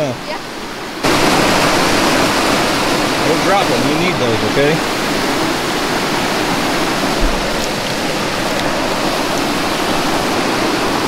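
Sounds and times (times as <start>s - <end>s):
water rushing over ledge: 0.0s - 11.0s
low thump: 7.1s - 8.2s.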